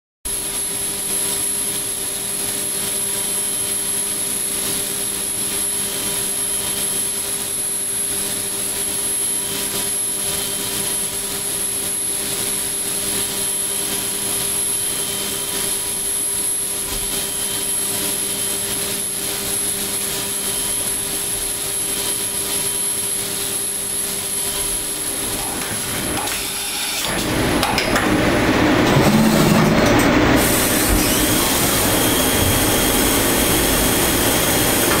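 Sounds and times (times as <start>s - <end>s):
milling machine spindle whine: 0.4s - 35.0s
low machine hums: 27.1s - 35.0s
rough rushing noise: 27.2s - 35.0s.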